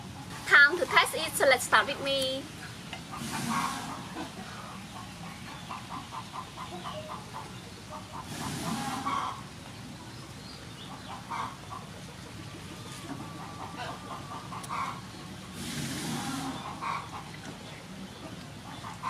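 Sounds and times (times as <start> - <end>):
domestic fowl calling: 3.1 - 4.3, 5.7 - 9.4, 11.0 - 11.9, 13.2 - 15.1, 16.0 - 17.3.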